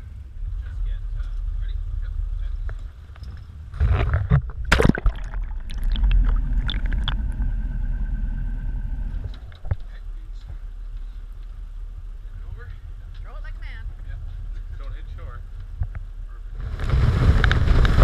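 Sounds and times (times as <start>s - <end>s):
underwater gurgling and rumble: 0.0s - 13.0s, 15.4s - 18.0s
crab trap splashing into water: 4.5s - 7.2s.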